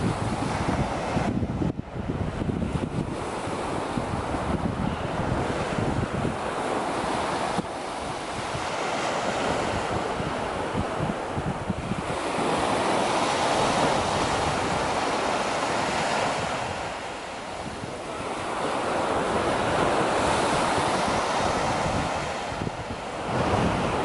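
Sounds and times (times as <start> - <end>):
waves washing up a beach: 0.0 - 24.0.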